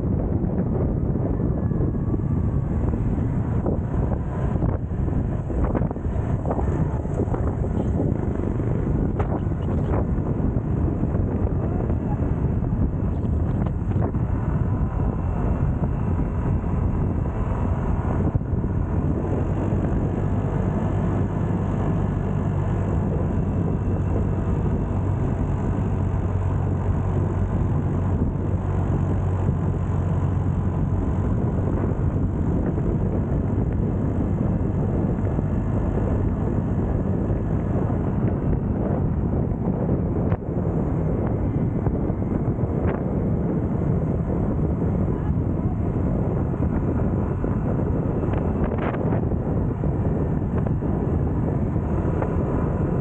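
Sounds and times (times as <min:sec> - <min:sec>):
scooter engine hum: 0:00.0 - 0:53.0
wind rush on microphone: 0:00.0 - 0:53.0.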